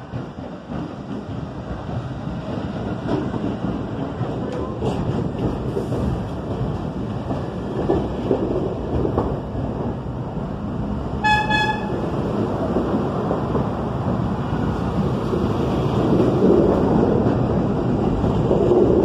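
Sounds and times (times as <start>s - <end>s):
subway train rumble: 0.0s - 19.0s
short horn toot: 11.2s - 11.9s.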